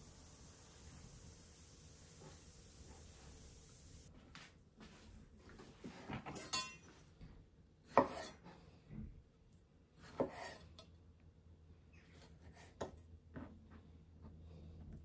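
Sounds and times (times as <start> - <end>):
knife cutting on wooden board: 7.9 - 8.5, 10.0 - 10.7.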